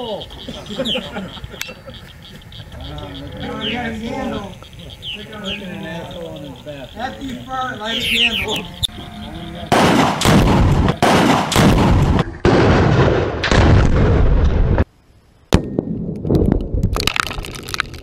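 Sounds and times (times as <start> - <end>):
explosion booms: 9.7 - 14.8
crackling bangs: 9.7 - 14.9
sharp crack: 9.7 - 14.9.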